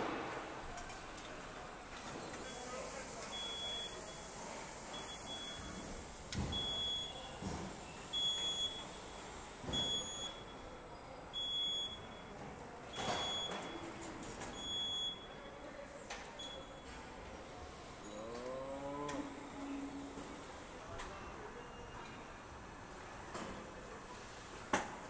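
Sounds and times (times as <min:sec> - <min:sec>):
short high warning beeps: 0:02.5 - 0:05.9, 0:09.8 - 0:10.6, 0:14.6 - 0:15.5.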